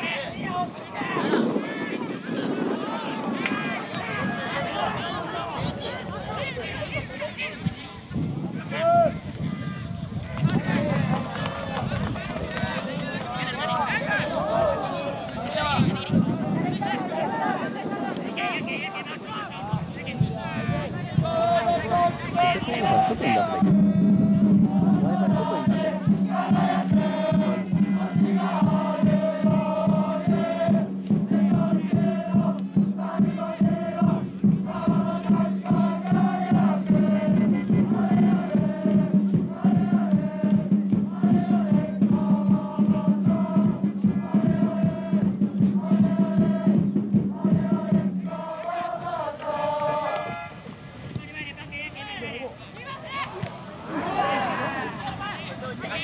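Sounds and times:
crowd chanting and singing: 0:00.0 - 0:56.0
fast steady drum beat: 0:18.7 - 0:50.0.

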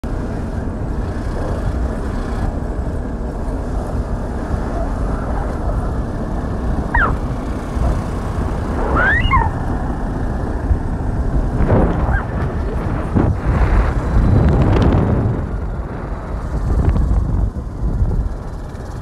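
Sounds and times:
wind buffeting microphone: 0:00.0 - 0:19.0
short falling chirp: 0:06.9 - 0:07.2.

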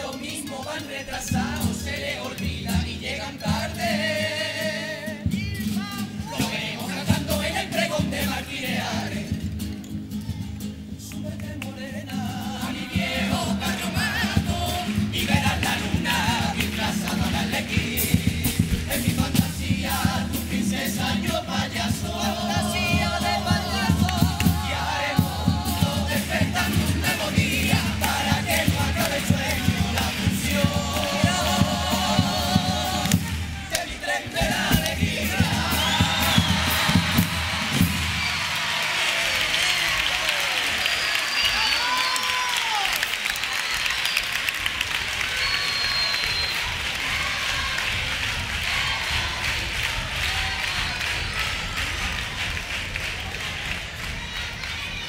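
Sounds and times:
male voices singing in chorus: 0:00.0 - 0:09.6, 0:11.2 - 0:37.8
guitars: 0:00.0 - 0:38.6
audience cheering and applauding: 0:21.6 - 0:55.0
drum strikes: 0:21.8 - 0:38.4.

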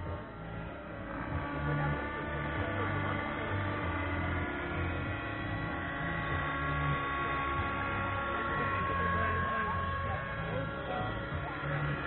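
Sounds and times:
radio-controlled helicopter hum: 0:00.0 - 0:12.0.

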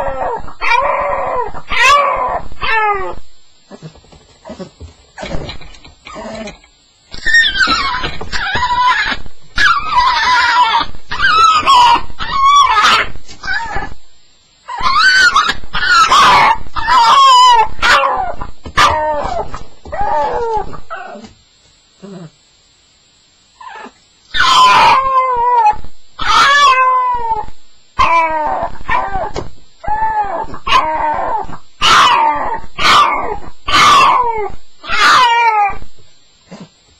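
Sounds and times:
dog whining and howling: 0:00.0 - 0:03.9, 0:07.2 - 0:14.0, 0:14.6 - 0:21.4, 0:23.6 - 0:36.0
faint dog whimpers: 0:23.6 - 0:24.0.

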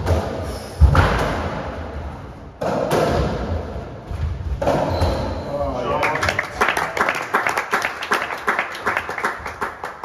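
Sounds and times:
ball hitting squash court walls: 0:00.0 - 0:05.5.

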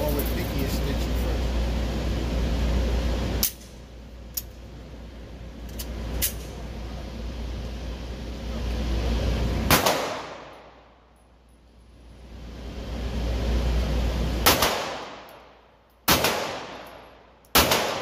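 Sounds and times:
gunshot: 0:09.7 - 0:10.5, 0:14.4 - 0:15.2, 0:16.1 - 0:16.8, 0:17.6 - 0:18.0.

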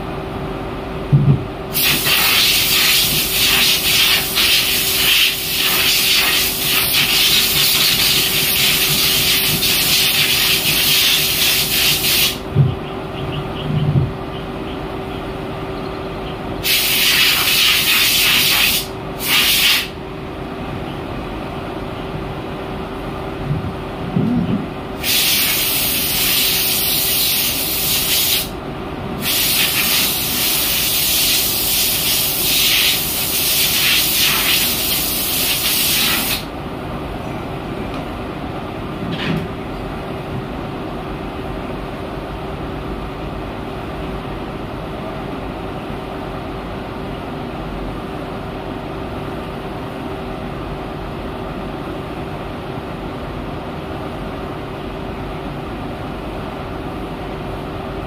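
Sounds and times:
spray jets hissing: 0:01.8 - 0:12.4, 0:16.6 - 0:19.9, 0:25.0 - 0:28.5, 0:29.2 - 0:36.4.

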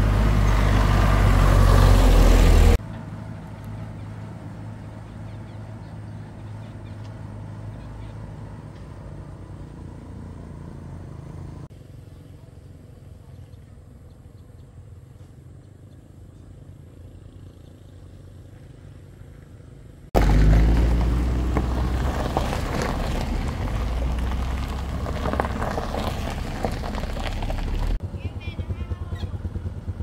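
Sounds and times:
engine rattling and clatter: 0:20.2 - 0:30.0
truck engine running: 0:20.2 - 0:30.0.

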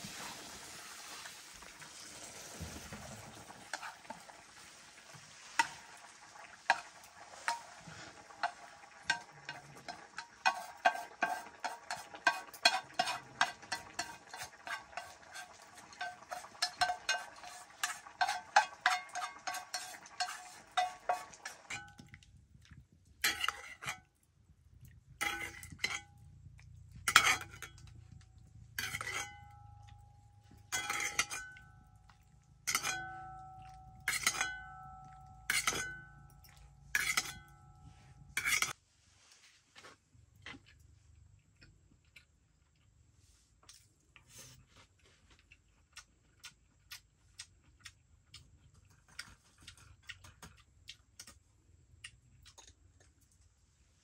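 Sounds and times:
metal utensil scraping cookware: 0:02.6 - 0:04.4, 0:05.1 - 0:22.2, 0:23.2 - 0:24.1, 0:25.2 - 0:26.2, 0:27.0 - 0:28.0, 0:28.7 - 0:38.8.

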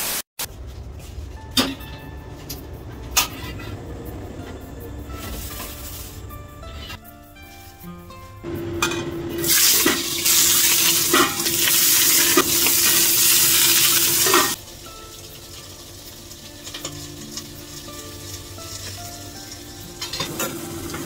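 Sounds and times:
fish sizzling in hot oil: 0:09.4 - 0:21.0.

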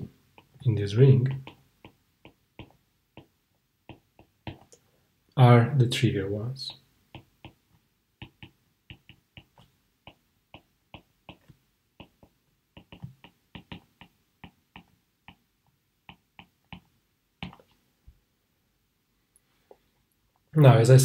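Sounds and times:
stylus tapping on tablet screen: 0:00.0 - 0:00.6, 0:01.2 - 0:04.8, 0:07.0 - 0:17.8.

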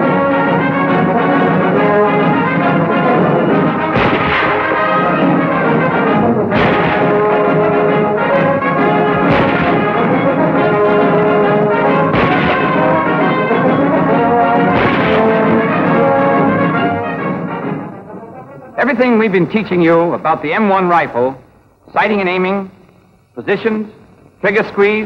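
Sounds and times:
orchestral music with brass: 0:00.0 - 0:19.3
sharp crashes: 0:02.3 - 0:17.8.

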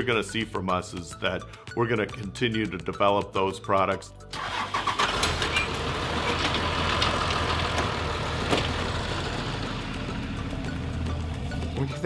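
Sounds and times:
engine idling: 0:04.4 - 0:12.0.

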